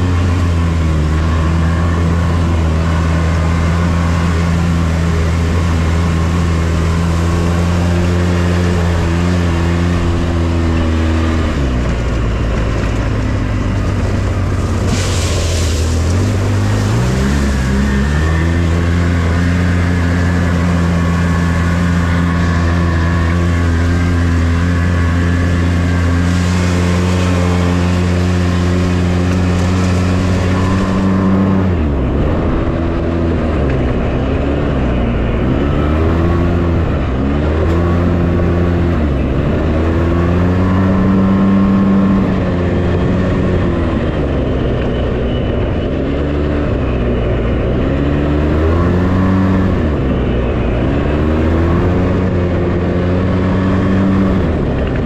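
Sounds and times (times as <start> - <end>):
engine running and revving: 0.0 - 55.0
water splashing: 13.2 - 19.1.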